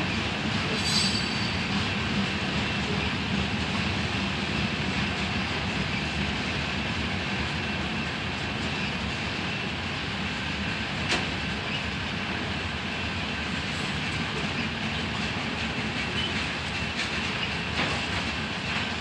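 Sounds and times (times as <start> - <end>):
freight train wheels on rails: 0.0 - 19.0.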